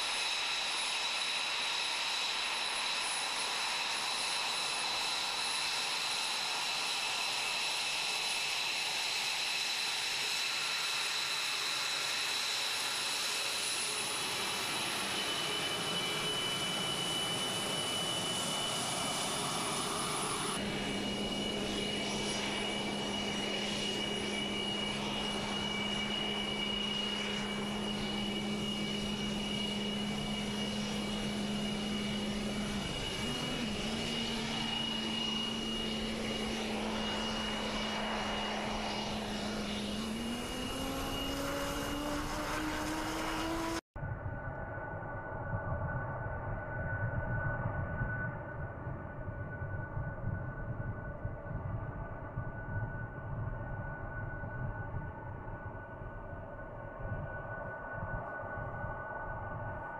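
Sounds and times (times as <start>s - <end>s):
jet engines whining: 0.0s - 43.8s
steady low hum: 20.2s - 43.6s.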